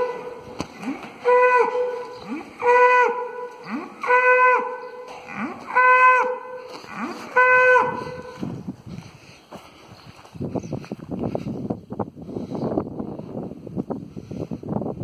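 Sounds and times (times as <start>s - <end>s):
cattle mooing: 0.0s - 8.5s.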